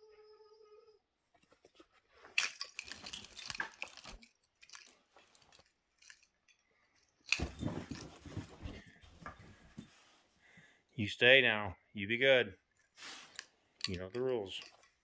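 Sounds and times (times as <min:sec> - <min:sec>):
collar tags jingling: 0:02.4 - 0:10.2
dogs scuffling: 0:07.3 - 0:10.2.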